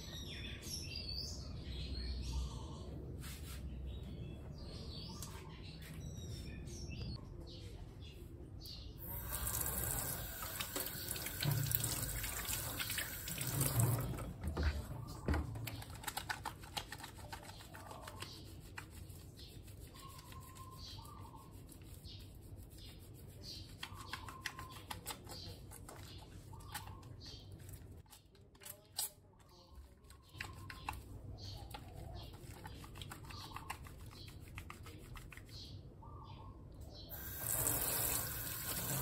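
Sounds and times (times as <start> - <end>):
hands rubbing with soap: 9.0 - 28.2, 30.0 - 35.7
tap water splashing in steel sink: 9.2 - 15.4.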